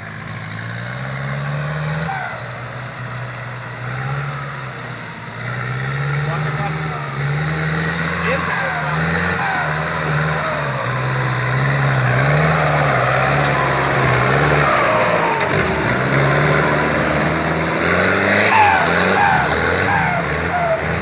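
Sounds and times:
engine running under load: 0.0s - 21.0s
turbo whistle: 18.2s - 21.0s.

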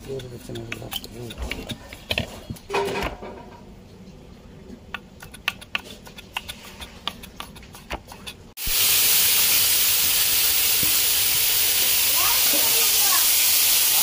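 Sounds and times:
knife chopping on wooden board: 0.0s - 3.1s
food hissing in a pan: 8.6s - 14.0s.

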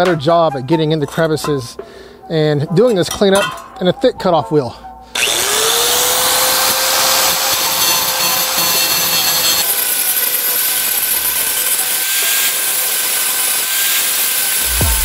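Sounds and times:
angle grinder grinding metal: 5.1s - 15.0s.

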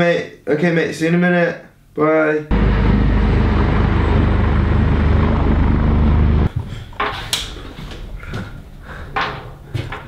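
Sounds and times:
helicopter rotor chop: 2.5s - 6.5s.

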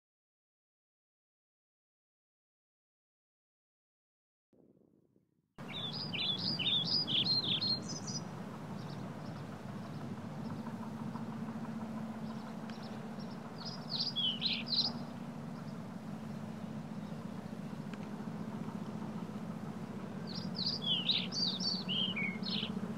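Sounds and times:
low outdoor hum: 5.6s - 22.9s
songbird warbling: 5.6s - 22.9s.

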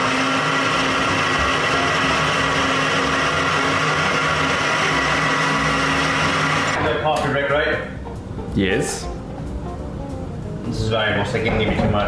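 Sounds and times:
blender running: 0.0s - 6.8s.

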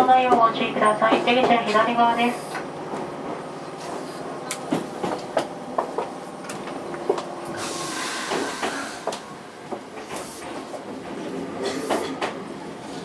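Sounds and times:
train air hiss: 2.2s - 2.6s, 7.5s - 9.2s, 10.1s - 10.7s
train wheels clicking over rail joints: 4.4s - 13.0s.

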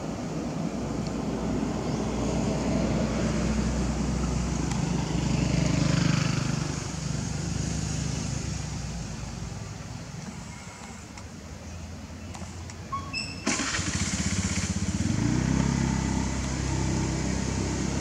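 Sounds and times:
vehicle engine passing: 1.2s - 9.6s, 13.5s - 18.0s.

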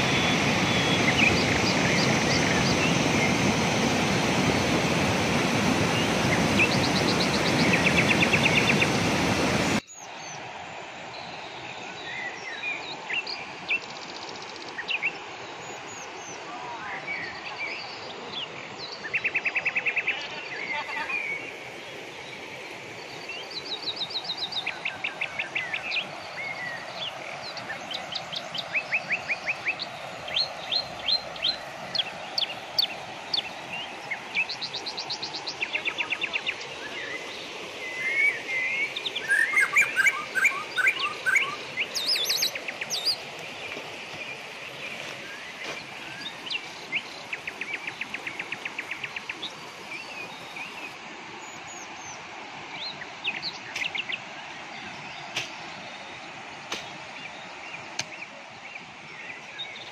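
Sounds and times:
forest birds trilling: 0.0s - 9.1s, 11.1s - 59.9s.

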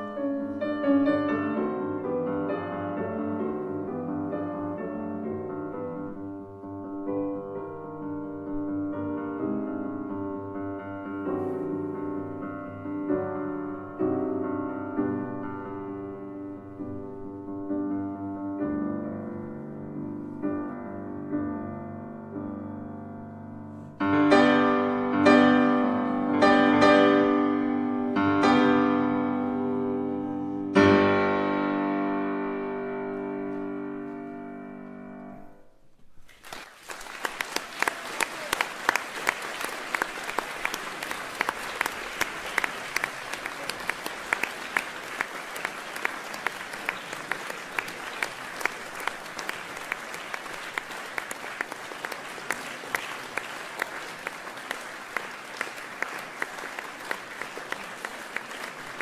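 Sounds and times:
grand piano chords: 0.0s - 36.2s
audience applauding: 36.2s - 59.0s.

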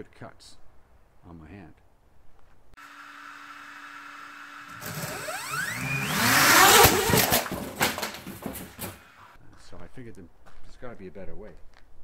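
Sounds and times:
drone propellers whining: 2.8s - 7.5s.

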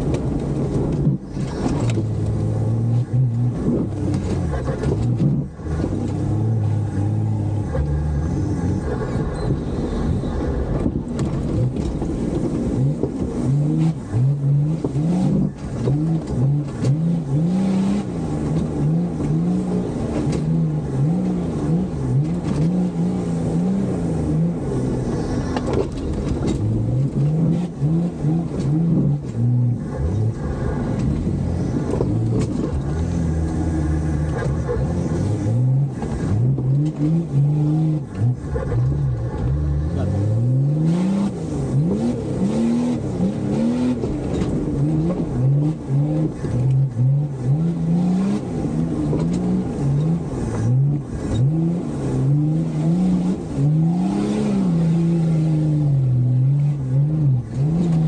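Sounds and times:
engine revving hard: 39.5s - 44.1s, 44.8s - 58.0s.

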